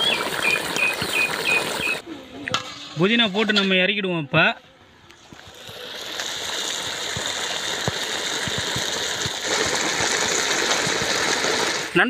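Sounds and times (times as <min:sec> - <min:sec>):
curry bubbling in a pot: 0:05.4 - 0:12.0.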